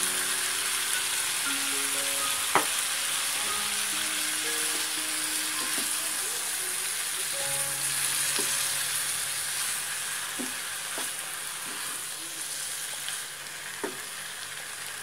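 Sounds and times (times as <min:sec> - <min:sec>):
vegetables sizzling in frying pan: 0:00.0 - 0:15.0
spatula tapping pan: 0:08.2 - 0:08.7.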